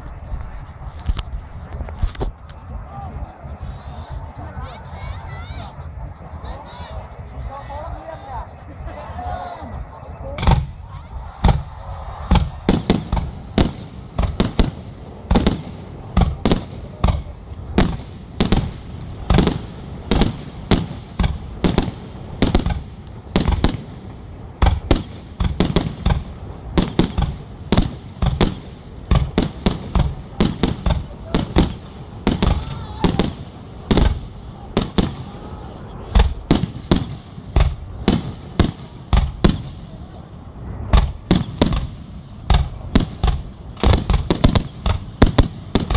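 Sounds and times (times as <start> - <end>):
aerial fireworks bangs: 10.4 - 45.9.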